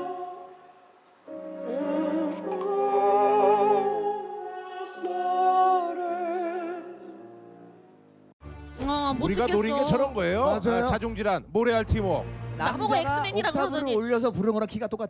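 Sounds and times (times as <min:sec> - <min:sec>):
person singing slow melody: 0:00.0 - 0:07.5.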